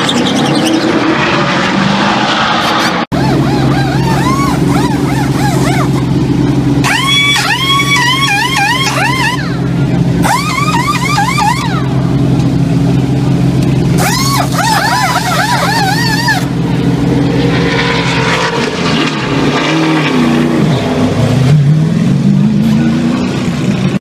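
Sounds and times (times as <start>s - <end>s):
high warbling whine: 0.0s - 24.0s
race car engines running: 0.0s - 24.0s
air impact wrenches: 10.2s - 11.8s, 14.0s - 16.5s.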